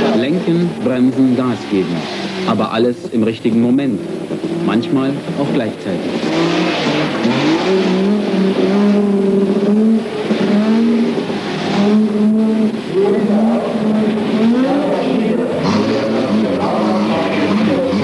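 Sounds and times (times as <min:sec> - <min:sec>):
rally car engine revving: 0:00.0 - 0:18.0.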